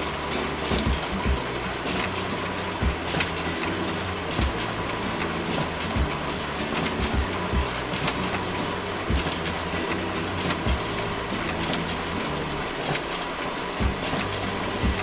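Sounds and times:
printer whirring: 0.0s - 15.0s
low thumps: 0.7s - 1.6s, 2.8s - 3.5s, 4.4s - 4.8s, 7.0s - 8.2s, 9.1s - 9.8s, 10.4s - 11.2s, 13.8s - 15.0s
paper swishes: 1.8s - 15.0s.

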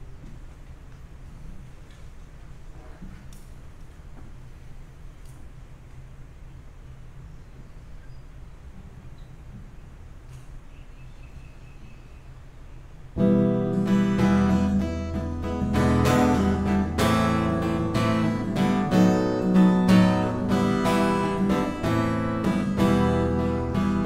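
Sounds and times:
acoustic guitar strumming chords: 13.2s - 24.0s.

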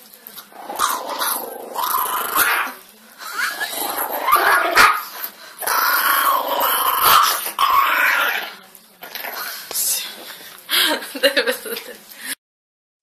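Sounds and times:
small dog growling: 0.5s - 2.8s, 3.4s - 5.0s, 5.6s - 9.6s.

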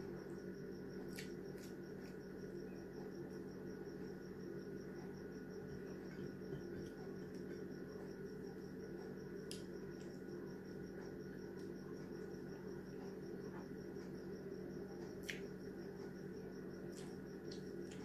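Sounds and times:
faint pulsing high chirping: 0.0s - 18.0s
steady low hum: 0.0s - 18.0s
soft chewing: 1.0s - 2.2s, 16.8s - 18.0s.

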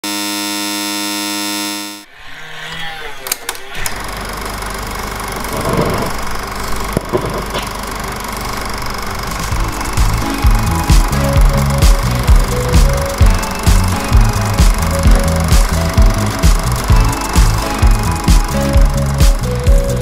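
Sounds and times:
steady multi-pitch tone: 0.0s - 2.1s, 8.5s - 20.0s
tape deck running: 3.2s - 20.0s
low hum: 3.8s - 20.0s.

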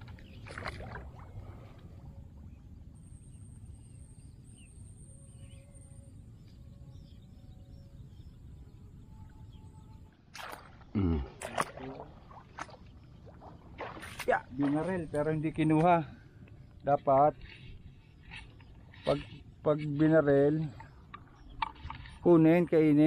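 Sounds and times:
faint bird chirps: 2.0s - 10.2s
footstep splashing in mud: 10.3s - 14.9s.

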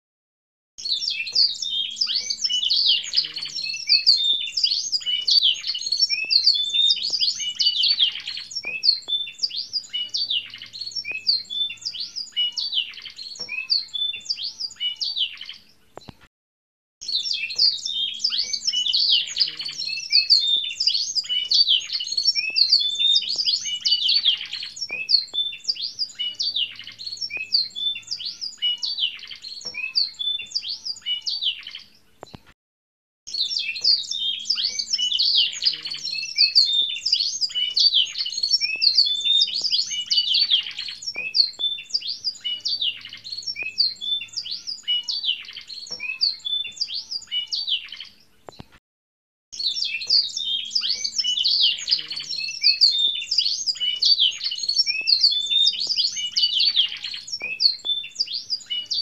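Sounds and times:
canary singing trills and chirps: 0.8s - 16.3s, 17.0s - 32.5s, 33.3s - 48.8s, 49.6s - 59.0s.

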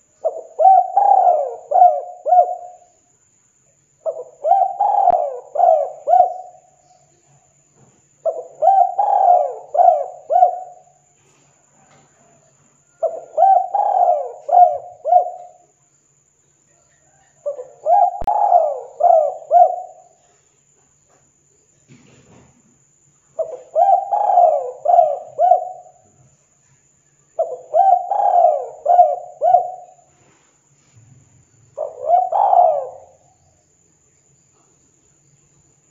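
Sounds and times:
dove cooing: 0.0s - 2.9s, 4.0s - 6.8s, 8.2s - 11.0s, 11.8s - 15.7s, 17.0s - 20.4s, 23.4s - 26.2s, 27.4s - 30.1s, 31.7s - 33.4s.

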